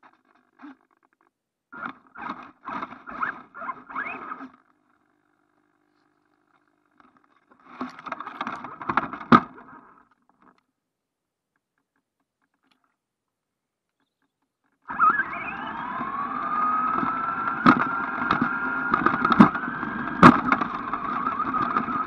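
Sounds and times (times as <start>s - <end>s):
rc truck rustling through brush: 1.8s - 4.6s, 14.9s - 22.0s.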